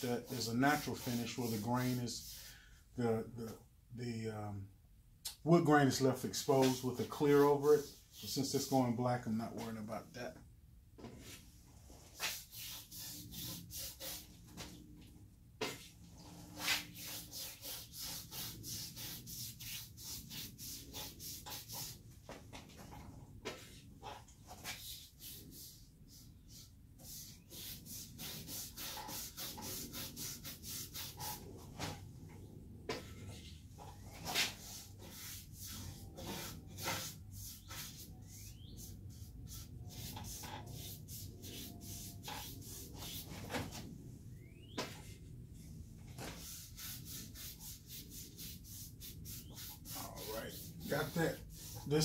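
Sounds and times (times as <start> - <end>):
paintbrush swishing on wood: 0.0 - 2.4, 6.4 - 8.9, 11.2 - 14.8, 15.6 - 22.0, 23.5 - 32.0, 32.9 - 43.6, 46.2 - 52.0.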